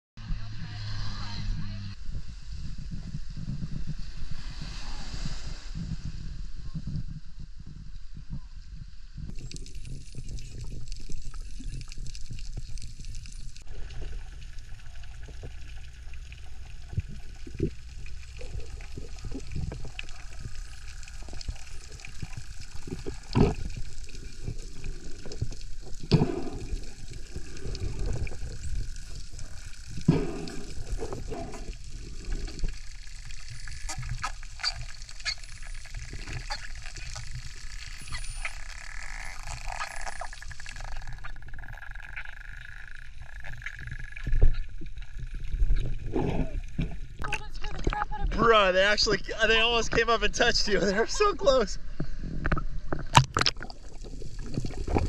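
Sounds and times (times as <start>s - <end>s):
low underwater rumble: 0.2s - 49.0s, 51.8s - 55.0s
dolphin whistles: 38.0s - 38.8s
underwater clicks and knocks: 52.0s - 55.0s.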